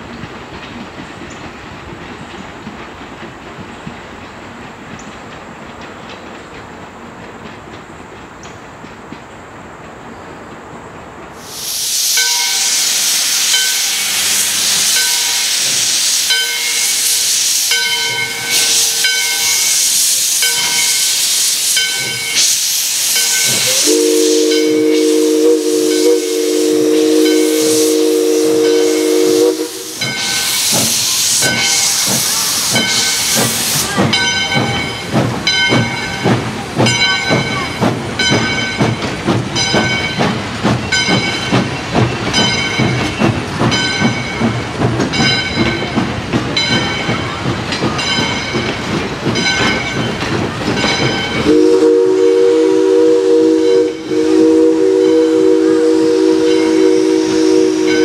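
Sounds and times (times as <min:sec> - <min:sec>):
train rolling with regular beat: 0:00.0 - 0:09.2, 0:13.4 - 0:58.0
steam hissing from cylinders: 0:11.3 - 0:58.0
steam locomotive chime whistle: 0:11.5 - 0:39.0, 0:50.8 - 0:58.0.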